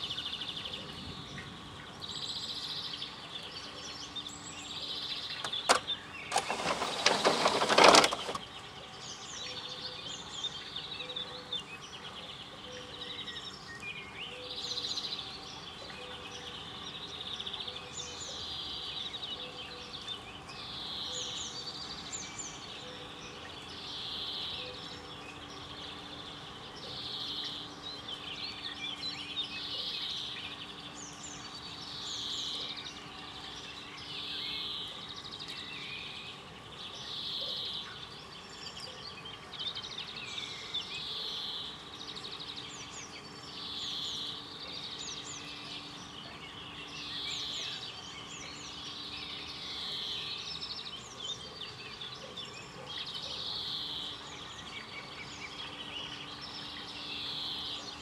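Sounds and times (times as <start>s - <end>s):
birds singing: 0.0s - 58.0s.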